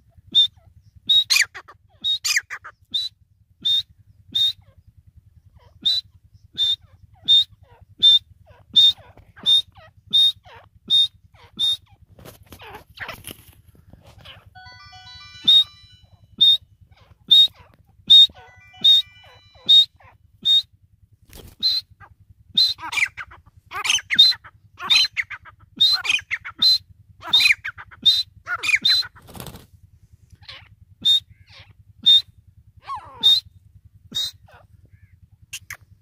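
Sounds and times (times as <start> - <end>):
francolin calling: 14.2 - 20.7, 30.4 - 35.8.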